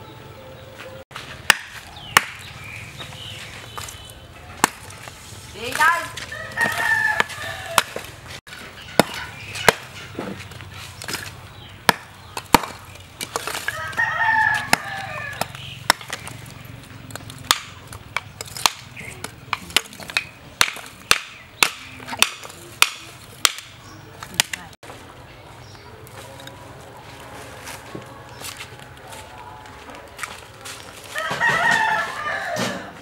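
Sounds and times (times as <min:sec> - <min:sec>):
hatchet striking charcoal: 0:01.2 - 0:02.8, 0:04.6 - 0:08.1, 0:08.8 - 0:24.6
rooster crowing: 0:06.3 - 0:08.0, 0:13.7 - 0:15.5, 0:31.1 - 0:33.0.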